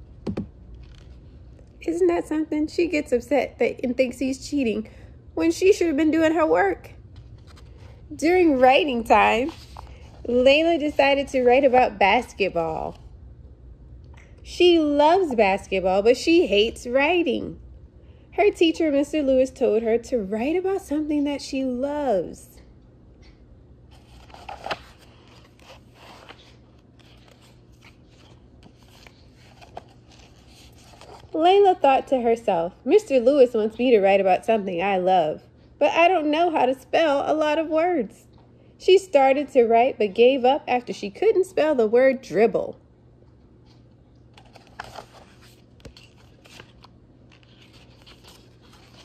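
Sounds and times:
book pages flipping: 0.2s - 1.7s, 7.1s - 11.2s, 23.9s - 31.4s, 43.6s - 49.0s.

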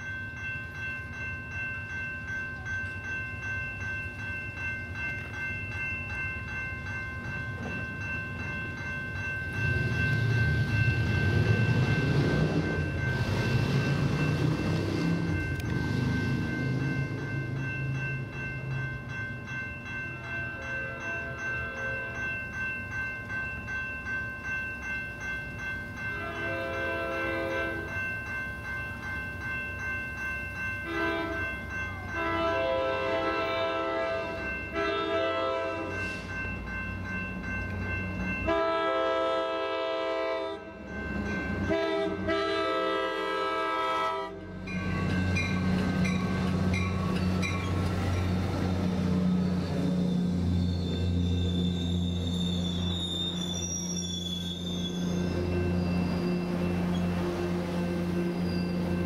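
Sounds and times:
crossing bells ringing: 0.0s - 59.0s
train horn blasts: 26.2s - 27.9s, 30.9s - 31.5s, 32.2s - 36.0s, 38.5s - 40.7s, 41.7s - 44.6s.

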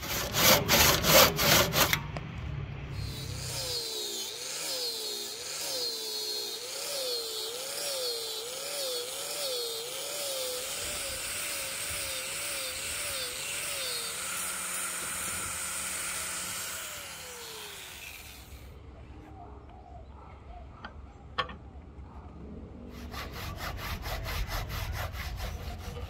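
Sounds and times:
grinder sanding wood: 0.0s - 2.0s, 3.0s - 18.6s, 23.0s - 26.0s.

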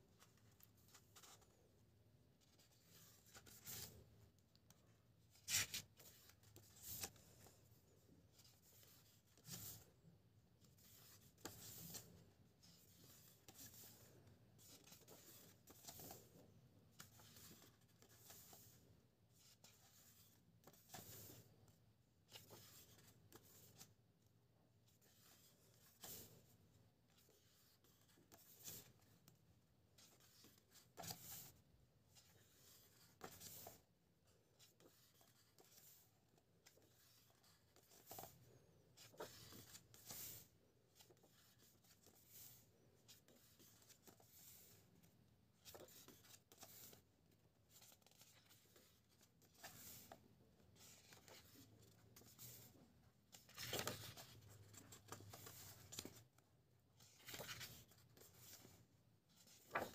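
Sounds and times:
book pages turning: 0.2s - 1.6s, 2.5s - 4.0s, 4.6s - 7.6s, 8.3s - 9.9s, 10.7s - 21.5s, 22.3s - 23.9s, 30.0s - 31.6s, 32.2s - 33.8s, 34.6s - 36.0s, 36.6s - 44.8s, 45.6s - 47.1s, 47.7s - 56.4s, 57.0s - 59.9s.

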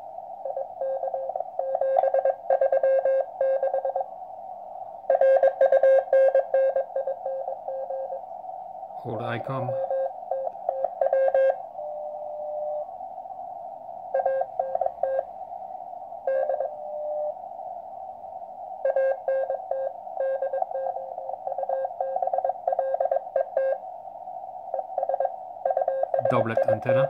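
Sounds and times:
receiver hiss: 0.0s - 27.0s
morse code tone: 9.6s - 12.8s, 25.0s - 27.0s.

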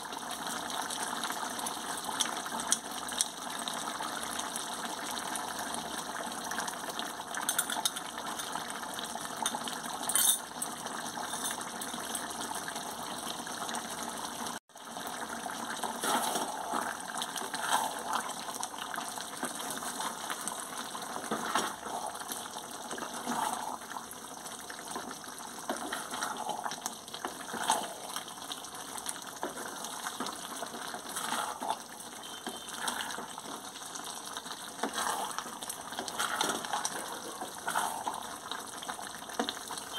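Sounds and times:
curry bubbling in a wok: 0.0s - 39.9s
wooden spatula scraping a pan: 15.8s - 18.2s, 21.2s - 21.9s, 22.9s - 23.8s, 25.7s - 26.4s, 27.2s - 28.3s, 29.4s - 33.6s, 34.7s - 38.2s.

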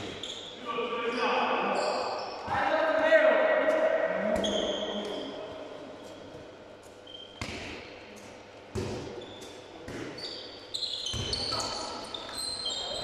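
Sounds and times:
sneaker squeaks on floor: 0.0s - 2.6s, 4.4s - 5.4s, 6.0s - 13.0s
ball thuds echoing: 8.7s - 9.2s.

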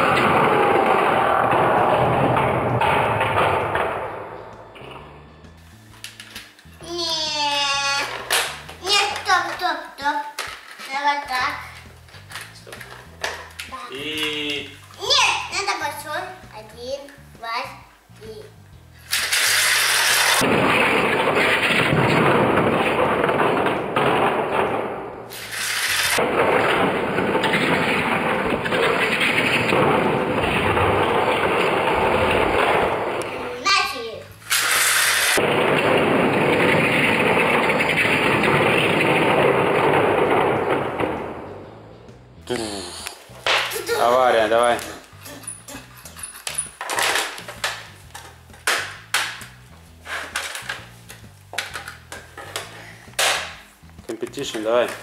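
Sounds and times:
plastic toy cars clattering: 10.3s - 14.4s, 19.1s - 20.4s, 44.7s - 49.4s, 50.1s - 50.9s, 51.6s - 53.5s
toy slot car motors whirring: 19.1s - 20.4s, 25.4s - 26.2s, 34.4s - 35.4s
cars rattling over plastic track: 19.1s - 23.3s, 25.3s - 32.6s, 34.4s - 35.4s.

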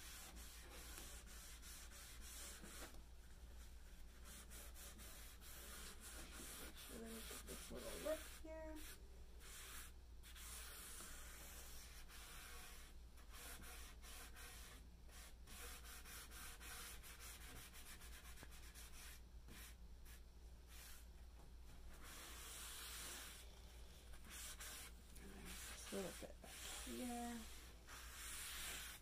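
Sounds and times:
paper towel rubbing on wood: 4.2s - 8.9s, 24.2s - 29.0s.

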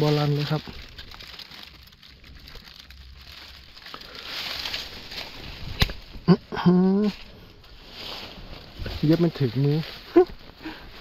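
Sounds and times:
soft rustling: 0.0s - 11.0s.

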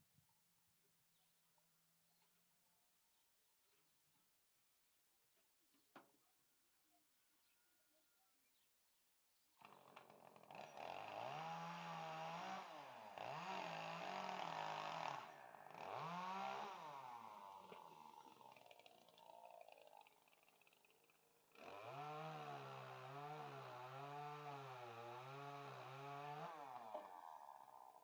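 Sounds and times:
faint bird chirps: 7.2s - 9.5s
chainsaw revving: 9.6s - 28.0s.

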